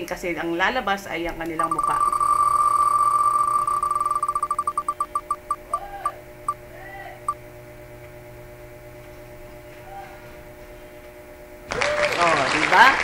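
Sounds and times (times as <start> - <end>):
faint steady hum: 0.0 - 12.1
spinning wheel ticks: 1.4 - 5.9
applause sound effect: 11.7 - 13.0.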